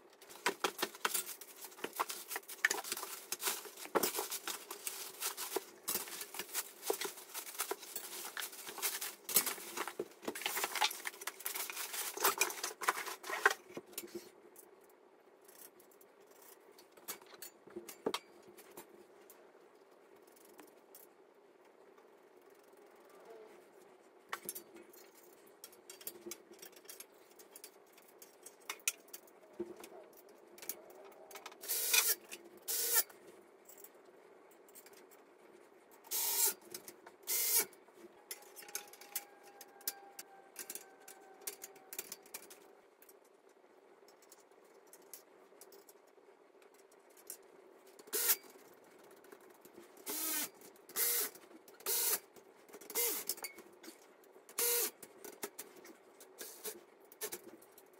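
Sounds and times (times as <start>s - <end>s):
metal parts clicking and knocking: 0.1s - 14.7s, 24.3s - 33.1s, 36.0s - 43.4s.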